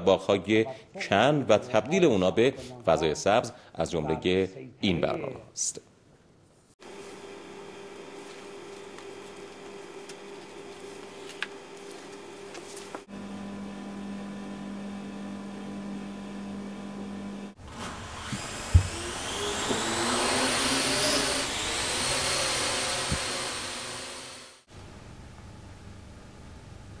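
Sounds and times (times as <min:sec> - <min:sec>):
whirring motor whine: 0:18.2 - 0:24.7.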